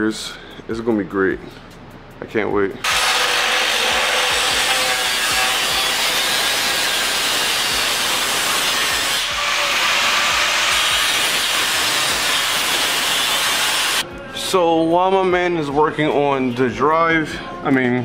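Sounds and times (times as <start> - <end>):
angle grinder grinding metal: 2.8 - 14.0.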